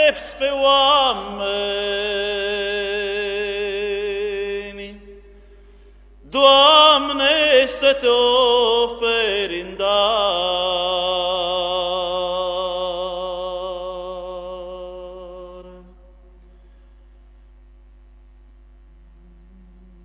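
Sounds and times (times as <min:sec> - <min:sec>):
man chanting a hymn: 0:00.0 - 0:05.4, 0:06.2 - 0:16.2
faint steady hum: 0:00.0 - 0:20.0.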